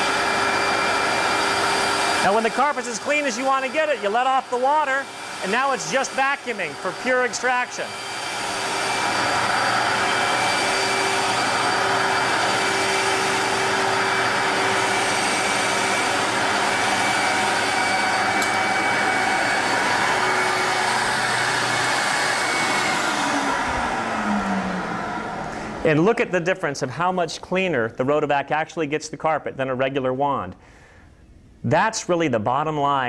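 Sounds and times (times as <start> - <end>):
motor winding down: 0.0 - 25.9
vacuum motor running: 0.0 - 26.0
low hum: 22.8 - 25.9.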